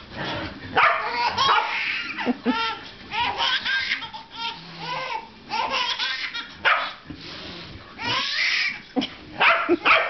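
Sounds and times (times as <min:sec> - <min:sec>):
dog barking: 0:00.8 - 0:01.7, 0:06.6 - 0:07.0, 0:09.4 - 0:10.0
baby giggling: 0:01.1 - 0:06.6.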